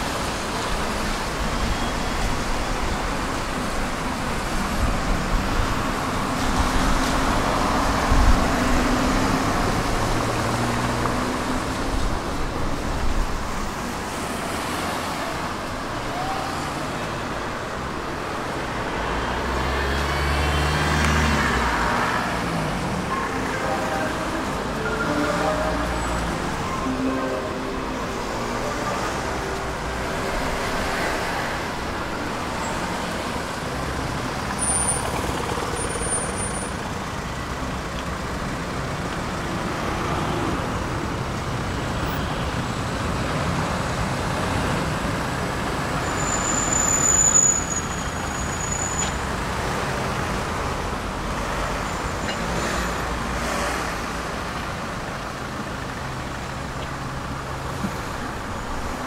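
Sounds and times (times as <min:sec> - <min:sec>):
tram wheels rumbling: 0:21.6 - 0:36.1
high-pitched wheel squeal: 0:46.0 - 0:49.2.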